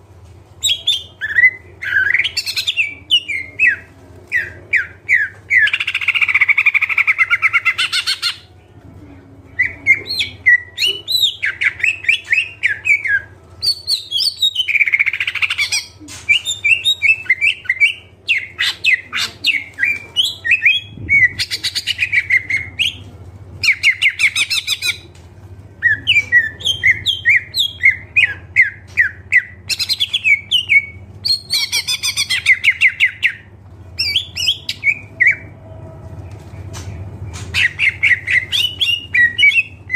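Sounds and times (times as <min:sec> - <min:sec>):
faint low hum: 0:00.0 - 0:39.9
bird singing: 0:25.8 - 0:35.6, 0:36.9 - 0:39.9.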